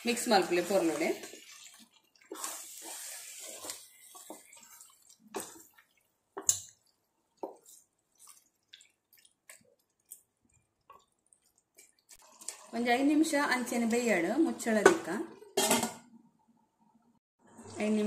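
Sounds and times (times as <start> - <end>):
spatula stirring wet marinade: 0.0 - 13.0.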